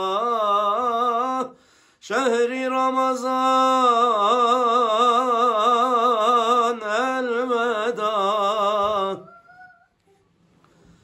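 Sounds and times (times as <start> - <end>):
man singing unaccompanied: 0.0 - 9.4
singer breathing in: 1.6 - 2.0.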